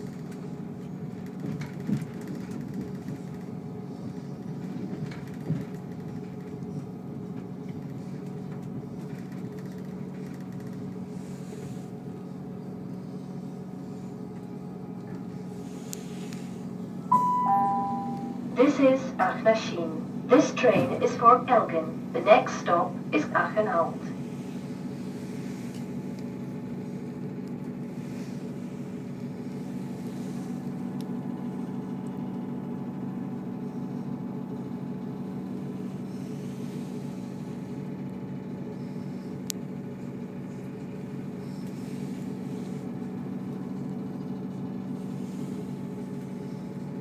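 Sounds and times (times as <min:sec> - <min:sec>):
train engine idling: 0:11.0 - 0:47.0.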